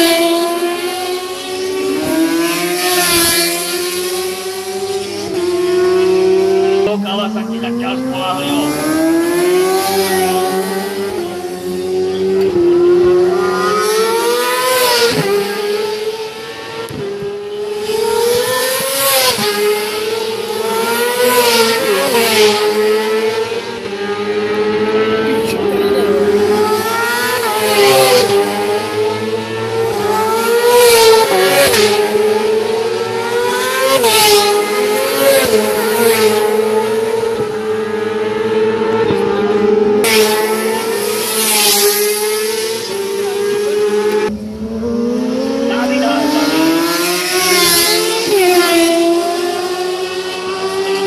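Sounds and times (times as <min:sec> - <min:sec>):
racing motorcycles accelerating past: 0:00.0 - 0:51.0
background engine drone: 0:42.0 - 0:47.5.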